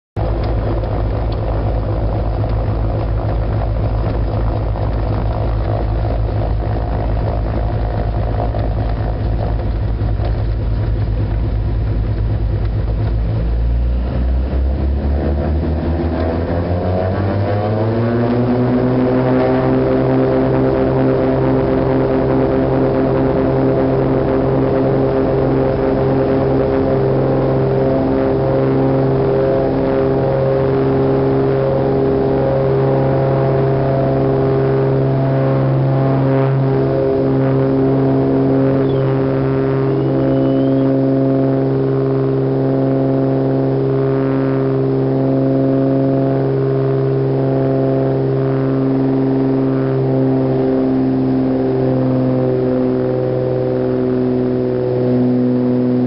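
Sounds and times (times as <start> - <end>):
propeller plane engines from cabin: 0.2 - 56.0.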